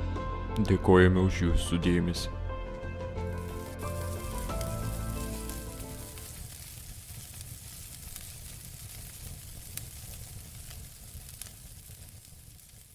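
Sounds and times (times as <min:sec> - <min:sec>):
background music: 0:00.0 - 0:06.4
crackling hiss: 0:03.3 - 0:12.9.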